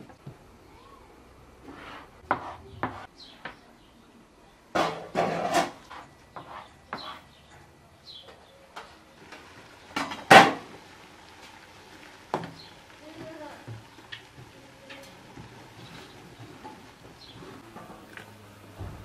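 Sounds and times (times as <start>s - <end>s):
knife cutting dough on wooden board: 1.7s - 3.1s.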